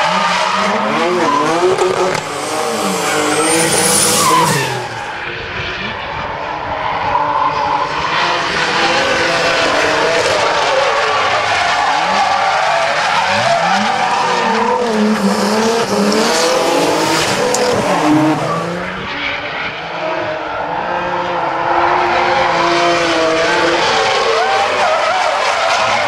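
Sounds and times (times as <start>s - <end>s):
car engines revving: 0.0s - 26.0s
tyres screeching: 0.7s - 5.1s.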